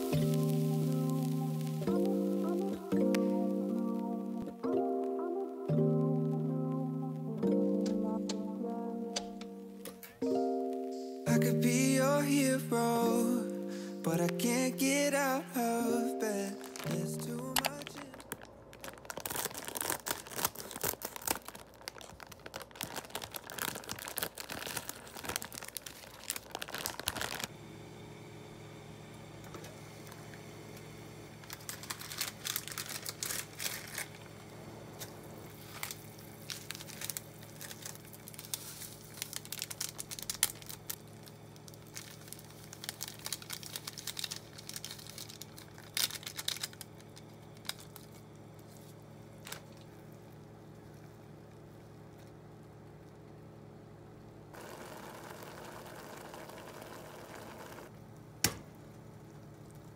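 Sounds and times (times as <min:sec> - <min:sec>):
sachets crinkling and tearing: 0:00.0 - 0:04.1, 0:11.7 - 0:27.5, 0:31.4 - 0:34.3, 0:35.0 - 0:49.9
plastic packet crinkling: 0:00.0 - 0:04.5, 0:11.4 - 0:27.5, 0:31.4 - 0:34.4, 0:35.1 - 0:49.9
steady low hum: 0:23.2 - 0:59.9.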